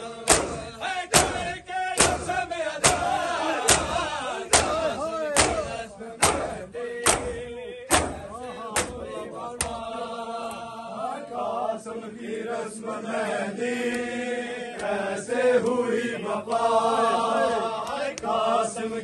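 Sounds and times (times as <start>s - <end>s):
men chanting together: 0.0s - 19.0s
men slapping their chests: 0.2s - 10.6s, 13.8s - 15.0s, 15.6s - 16.7s, 17.8s - 18.5s.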